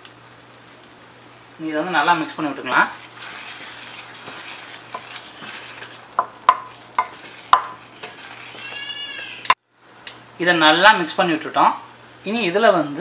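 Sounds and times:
oil sizzling: 0:00.0 - 0:13.0
spatula scraping pan: 0:02.7 - 0:09.6
spatula knocking against pan: 0:06.2 - 0:08.7.

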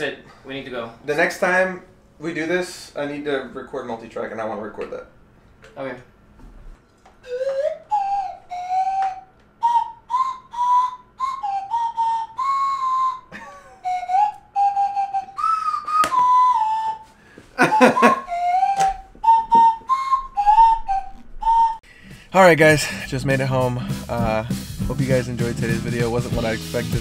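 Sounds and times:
person whistling a tune: 0:07.2 - 0:21.8.

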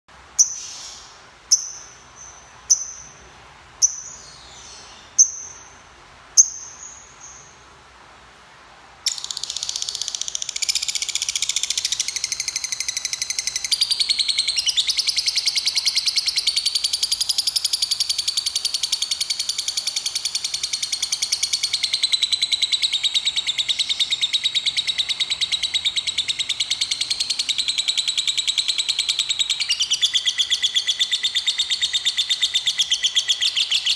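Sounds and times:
lovebird chirping: 0:00.3 - 0:07.7, 0:09.1 - 0:33.9
rapid chattering bird trill: 0:09.1 - 0:33.9.

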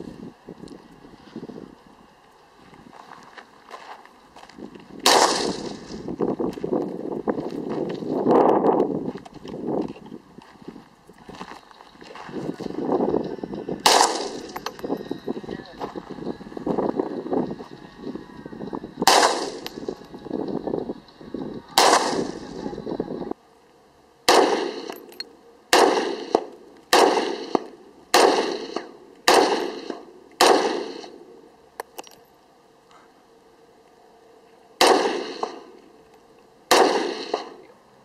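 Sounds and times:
rifle shots: 0:05.0 - 0:06.1, 0:13.8 - 0:14.8, 0:19.0 - 0:20.0, 0:21.8 - 0:22.6, 0:24.3 - 0:25.1, 0:25.7 - 0:31.3, 0:34.8 - 0:35.7, 0:36.7 - 0:37.6.

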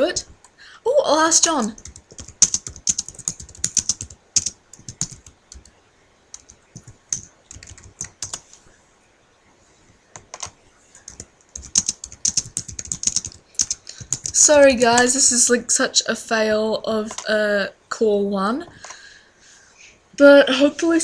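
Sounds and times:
typing on computer keyboard: 0:01.7 - 0:05.7, 0:06.3 - 0:08.5, 0:10.2 - 0:15.1, 0:17.1 - 0:17.3.

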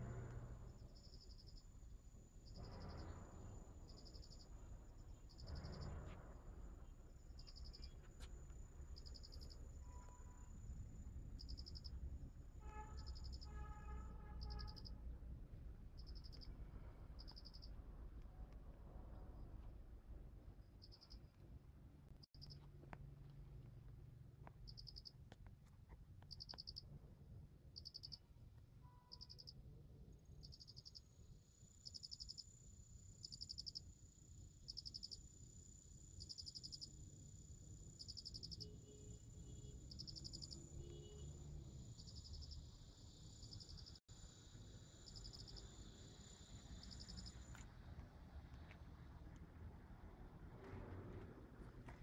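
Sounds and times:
insect pulsed chirp: 0:00.7 - 0:05.9, 0:07.1 - 0:15.0, 0:16.0 - 0:17.8, 0:20.8 - 0:21.3, 0:24.7 - 0:25.1, 0:26.3 - 0:26.8, 0:27.8 - 0:28.2, 0:28.8 - 0:47.8
high thin insect trill: 0:12.6 - 0:15.0, 0:30.4 - 0:34.0, 0:34.6 - 0:47.8.

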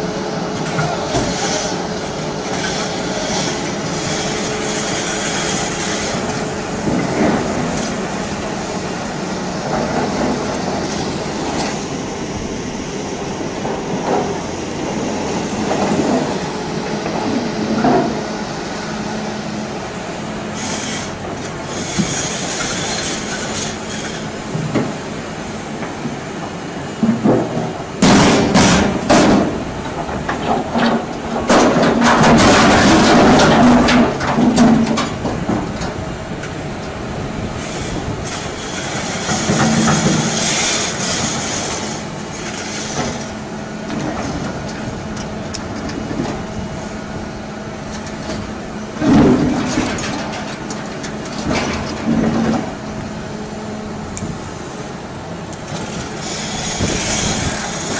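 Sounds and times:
diesel engine drone: 0:00.0 - 0:57.9
clanks and knocks: 0:27.0 - 0:36.0, 0:48.2 - 0:52.8.

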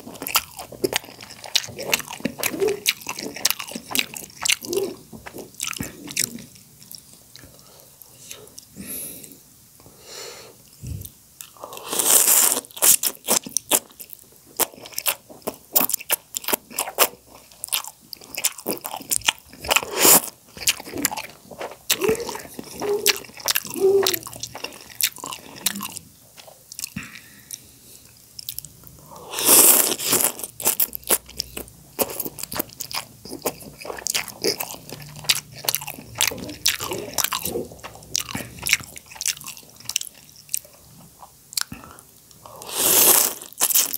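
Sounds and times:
wet chewing and lip smacks: 0:30.7 - 0:42.4
noodle slurps: 0:42.5 - 0:43.9.

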